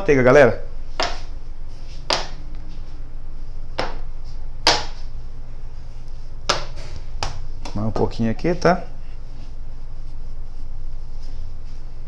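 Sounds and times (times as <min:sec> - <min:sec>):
bench scraper chopping dough: 0:01.0 - 0:01.3, 0:02.1 - 0:02.4, 0:04.6 - 0:05.0, 0:06.5 - 0:07.8.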